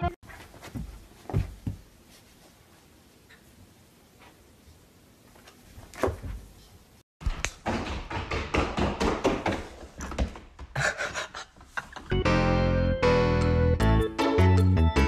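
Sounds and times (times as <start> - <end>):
goat hooves clattering on wood floor: 7.2 - 10.8.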